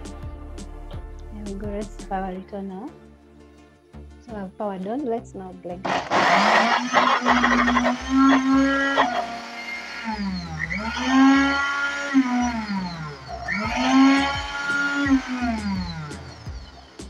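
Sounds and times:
blender motor whining: 5.8s - 17.0s.

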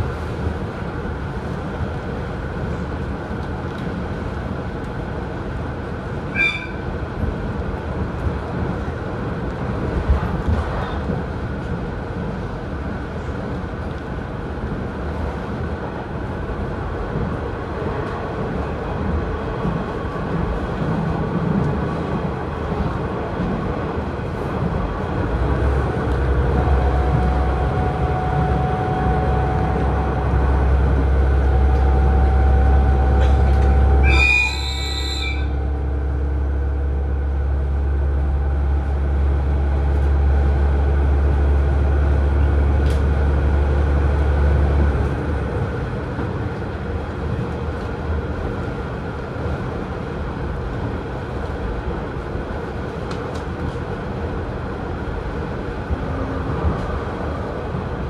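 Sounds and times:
train rail running noise: 0.0s - 58.0s
diesel engine drone: 24.8s - 47.4s
high-pitched squeal: 34.0s - 35.6s.

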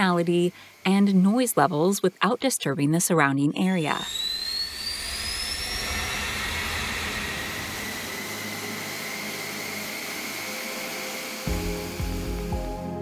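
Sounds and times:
jet engine turbine whine: 0.0s - 13.0s
jet engine roar: 3.9s - 12.6s.

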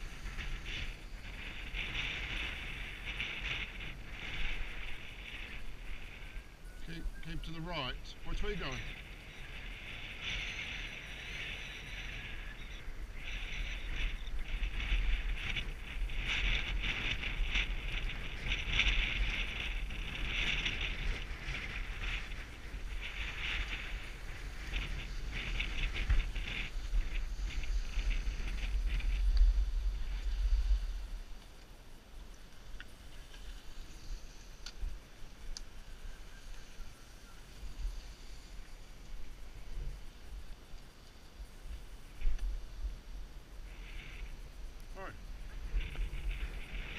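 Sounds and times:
skis scraping over snow: 0.0s - 31.7s, 40.6s - 46.9s
wind rumble on microphone: 0.0s - 46.9s
skis hissing on snow: 21.6s - 46.9s.

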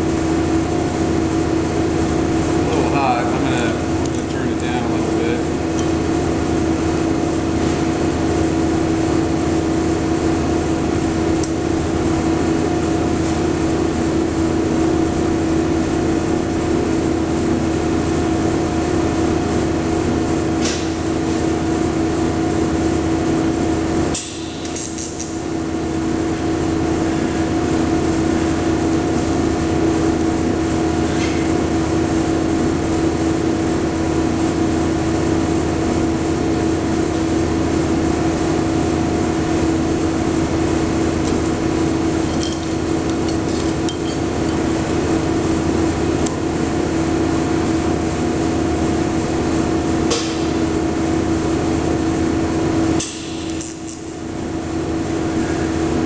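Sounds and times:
welding equipment hum: 0.0s - 56.0s.

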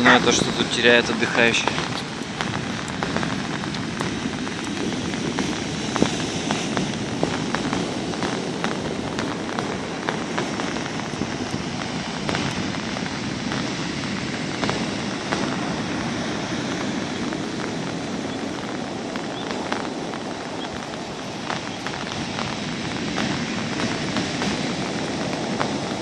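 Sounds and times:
heavy surf breaking on beach: 0.0s - 26.0s.

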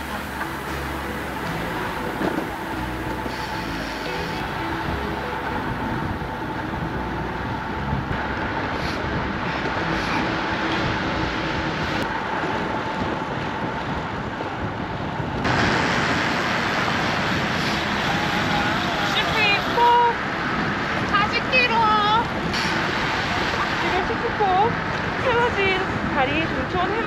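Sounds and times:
bicycle tyre noise: 0.0s - 21.0s
wind rush: 0.0s - 27.0s.

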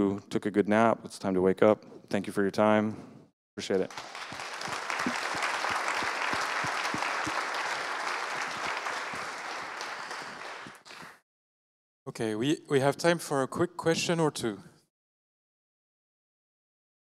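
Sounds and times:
audience applauding: 3.7s - 11.2s.

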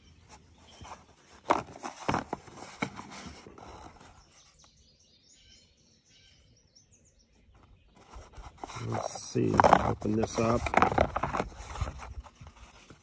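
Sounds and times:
cardboard box knocks and scrapes: 0.8s - 4.2s, 8.2s - 13.0s
faint bird chirps: 3.8s - 8.6s.

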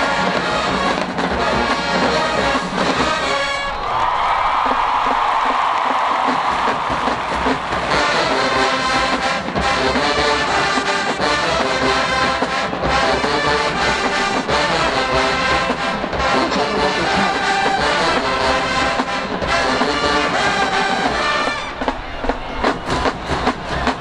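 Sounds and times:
marching band brass: 0.0s - 24.0s
snare and bass drums: 0.0s - 24.0s.

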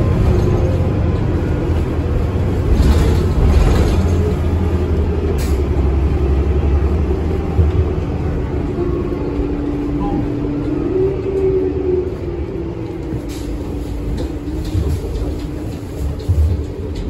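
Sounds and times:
bus engine rumble: 0.0s - 17.0s
steady engine whine: 0.0s - 17.0s.

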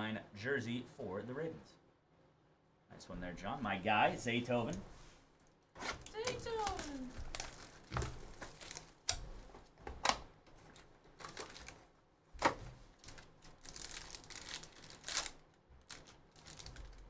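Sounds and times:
foil wrappers tearing: 5.8s - 9.2s, 11.2s - 11.9s, 13.0s - 17.0s
cards rustling: 5.8s - 9.6s, 10.6s - 17.0s
foil crackles: 6.0s - 9.2s, 11.2s - 11.9s, 12.9s - 17.0s.

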